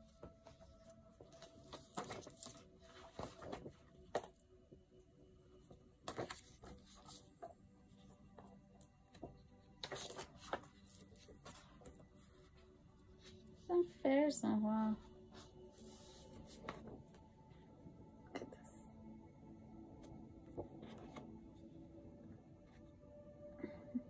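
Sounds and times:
paper rustling and crackling: 0:00.0 - 0:04.4, 0:06.0 - 0:07.6, 0:09.1 - 0:13.6, 0:15.4 - 0:17.2.

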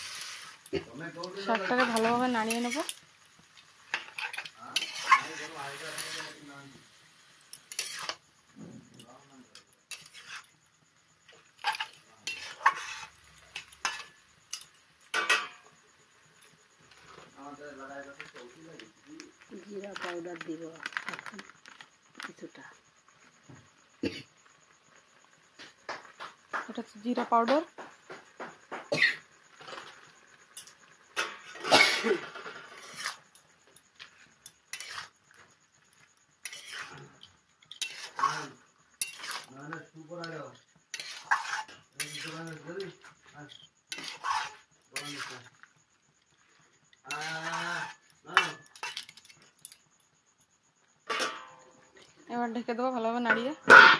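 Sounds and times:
spatula scraping metal pan: 0:01.4 - 0:03.0, 0:03.7 - 0:06.5, 0:07.5 - 0:08.3, 0:09.8 - 0:10.6, 0:11.3 - 0:15.7, 0:29.6 - 0:45.7, 0:46.5 - 0:49.8.

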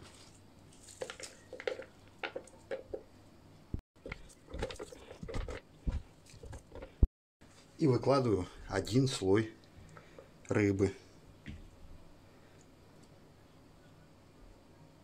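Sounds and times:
onion rustling: 0:00.0 - 0:02.6.

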